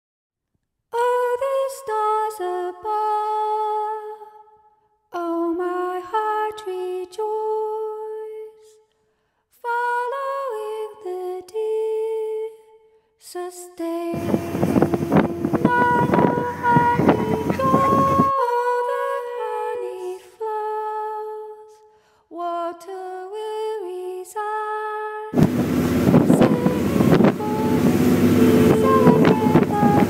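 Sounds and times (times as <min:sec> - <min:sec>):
person singing lullaby melody: 0:13.9 - 0:21.2, 0:26.0 - 0:30.0.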